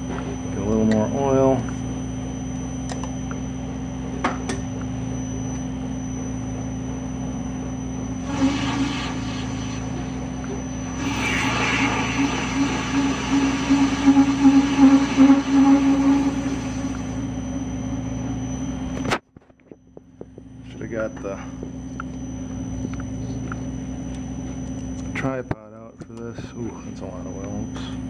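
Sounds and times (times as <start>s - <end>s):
metal lathe running: 8.0s - 18.5s.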